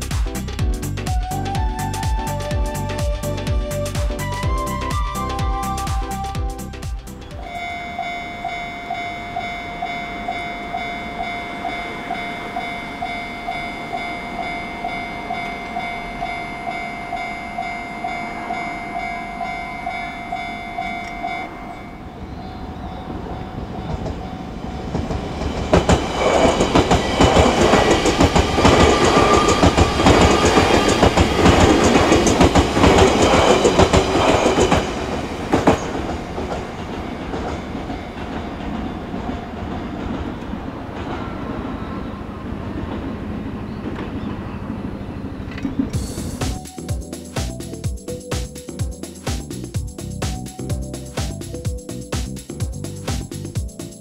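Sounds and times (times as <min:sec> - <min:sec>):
level-crossing warning bell ringing: 0:07.3 - 0:39.5, 0:40.8 - 0:43.8
train wheels clattering over rail joints: 0:24.8 - 0:41.8.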